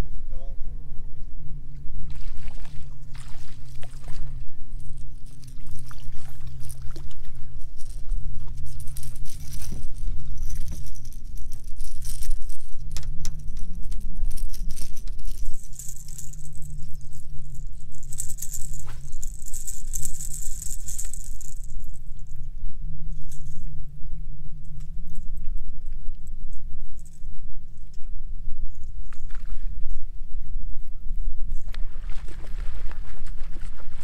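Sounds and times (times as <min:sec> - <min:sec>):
light jangling rattle: 0:04.8 - 0:22.0.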